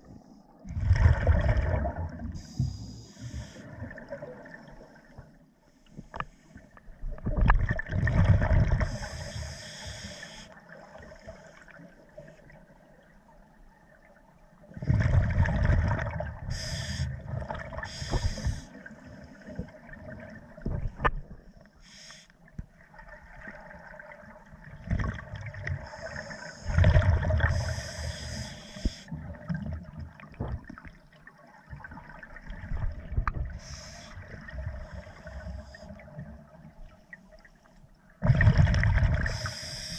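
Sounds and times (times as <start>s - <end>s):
quiet bubbling: 0.0s - 39.9s
gurgling exhaled bubbles with hiss: 0.6s - 5.2s, 7.2s - 12.3s, 14.7s - 21.0s, 24.8s - 30.7s, 31.8s - 36.6s, 38.2s - 39.9s.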